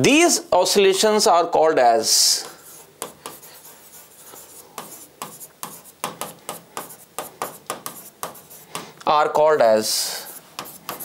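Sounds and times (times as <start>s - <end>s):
stylus scratching on glass: 2.4s - 8.7s, 10.2s - 11.0s.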